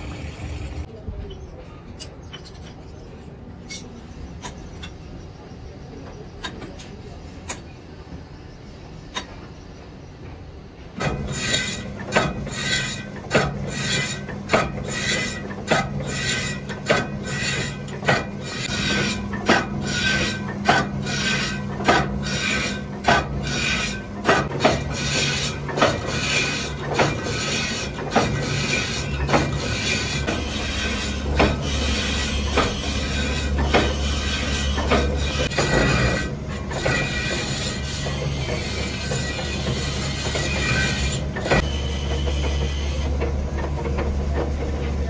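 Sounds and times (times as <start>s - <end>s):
lathe motor humming: 0.0s - 0.9s
cutting tool scraping metal: 11.2s - 43.1s.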